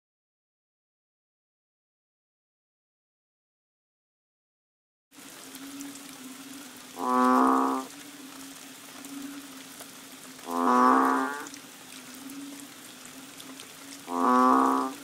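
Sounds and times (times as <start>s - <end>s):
frog mooing calls: 7.0s - 8.0s, 10.4s - 11.6s, 14.0s - 15.0s.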